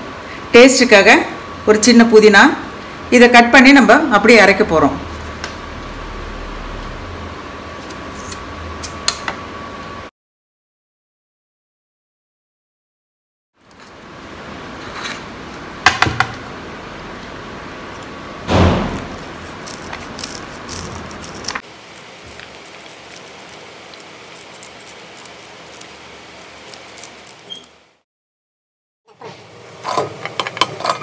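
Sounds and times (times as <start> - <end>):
heavy knock: 18.5 - 19.1
knife cutting vegetables on a plate: 18.9 - 25.9
scissors snipping stems: 18.9 - 25.9.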